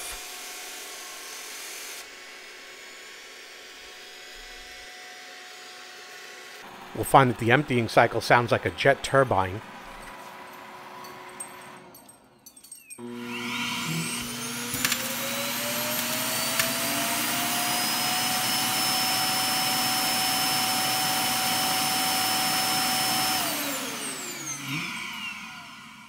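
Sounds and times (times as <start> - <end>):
vacuum suction motor whining: 0.0 - 11.8, 13.0 - 26.0
click: 15.9 - 16.8.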